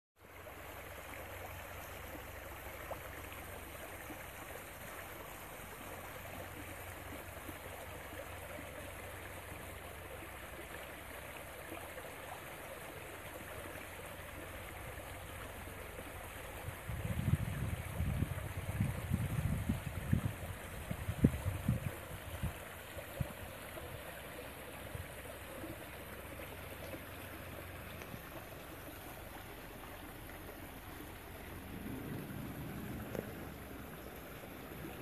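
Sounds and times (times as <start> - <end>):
stream rushing over stones: 0.2 - 35.0
low rumble: 30.8 - 35.0.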